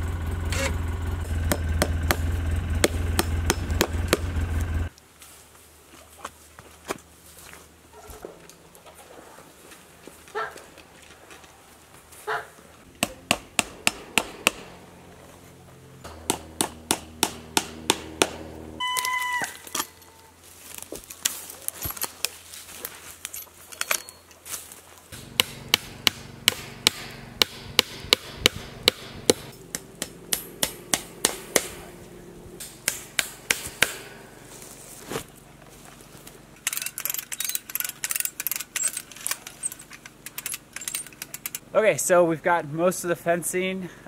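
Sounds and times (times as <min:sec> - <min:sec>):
hammer striking staples into wood: 0:13.0 - 0:14.6, 0:16.1 - 0:18.4, 0:25.4 - 0:31.8, 0:32.8 - 0:34.1
short high call: 0:18.8 - 0:20.4.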